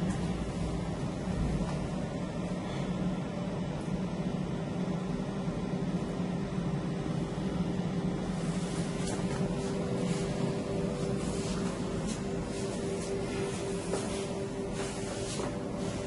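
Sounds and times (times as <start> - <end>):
mechanical hum: 0.0 - 16.0.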